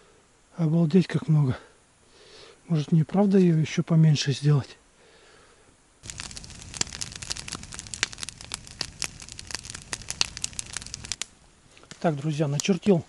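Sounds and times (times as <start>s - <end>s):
campfire crackling: 6.0s - 13.0s.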